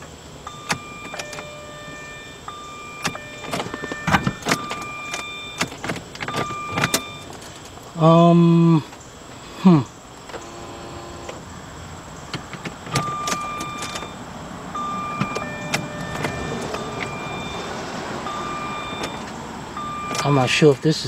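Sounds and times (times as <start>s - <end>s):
electronic warning beeps: 0.4s - 7.4s, 12.9s - 14.2s, 14.8s - 20.6s.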